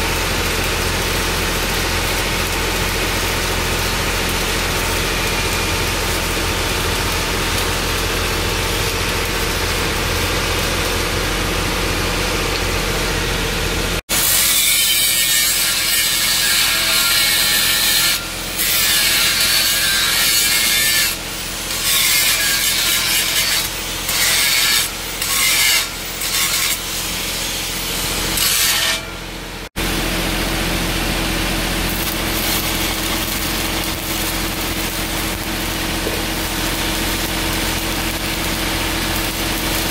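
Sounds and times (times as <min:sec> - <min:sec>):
arc welding crackling and hissing: 0:00.0 - 0:39.9
angle grinder grinding metal: 0:14.1 - 0:29.2, 0:31.7 - 0:39.9.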